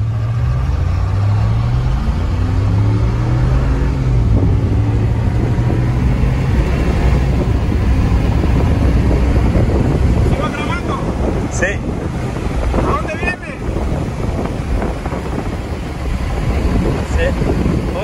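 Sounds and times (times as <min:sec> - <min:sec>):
pickup truck engine running: 0:03.9 - 0:18.0.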